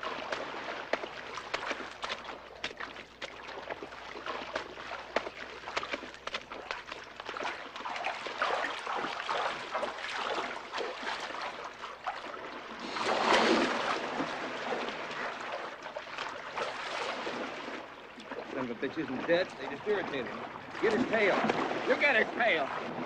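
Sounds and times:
water splashing and sloshing: 0.0s - 23.0s.

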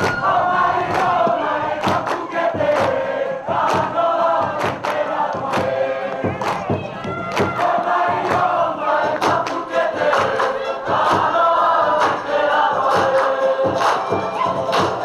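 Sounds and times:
group singing in unison: 0.0s - 15.0s
sharp percussive beats: 0.0s - 15.0s.

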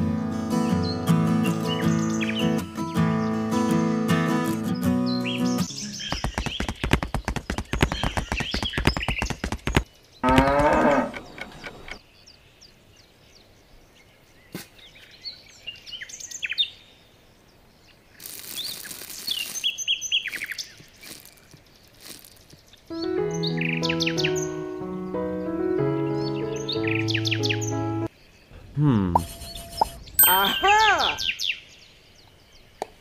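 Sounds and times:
birds chirping: 0.4s - 33.0s
cow mooing: 10.2s - 11.3s
rustling: 18.2s - 22.8s.

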